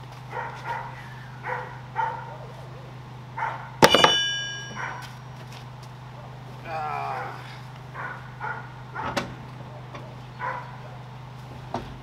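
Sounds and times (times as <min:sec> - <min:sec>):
dog barking: 0:00.3 - 0:02.6, 0:03.4 - 0:03.8, 0:04.7 - 0:05.1, 0:07.9 - 0:11.0
metal bar clanging on ground: 0:03.8 - 0:05.2.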